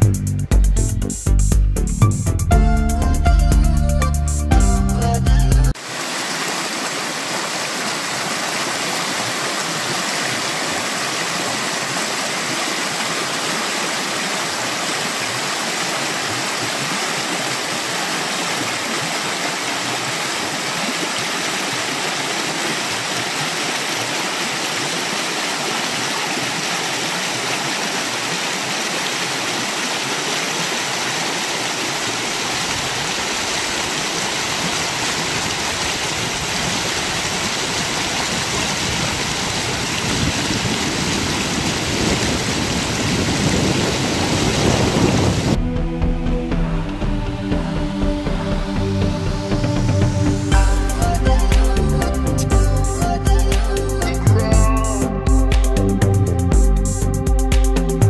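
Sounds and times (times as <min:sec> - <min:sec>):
creek water rushing over rocks: 0:05.7 - 0:45.6.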